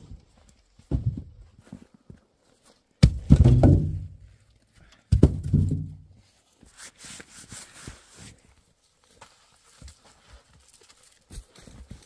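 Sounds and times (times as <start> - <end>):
firewood thunking into wooden box: 3.0 - 4.2, 5.1 - 6.1.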